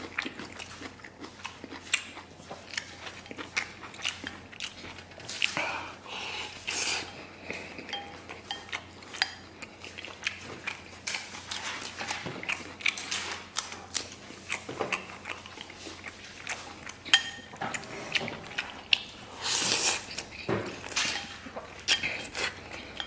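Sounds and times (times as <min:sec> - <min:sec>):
wet chewing and lip smacks: 0:00.0 - 0:05.6.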